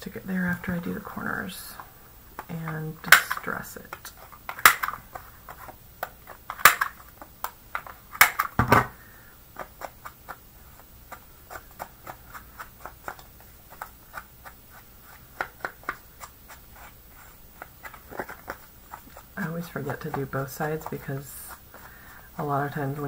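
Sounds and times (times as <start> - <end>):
tool scraping card edges: 9.6 - 22.2.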